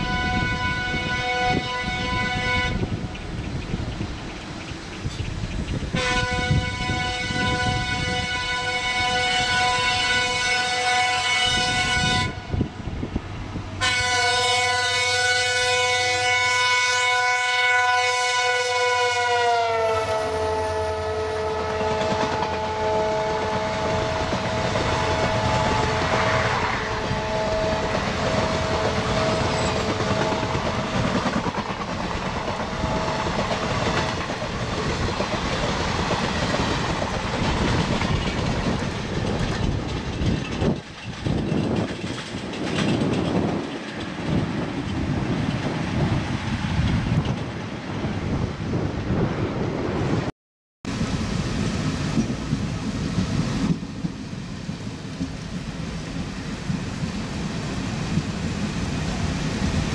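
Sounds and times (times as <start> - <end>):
train horn blasts: 0.0 - 3.0, 5.9 - 12.7, 13.8 - 31.0, 32.4 - 34.2
train wheels clattering on rails: 2.0 - 6.7, 21.6 - 47.7.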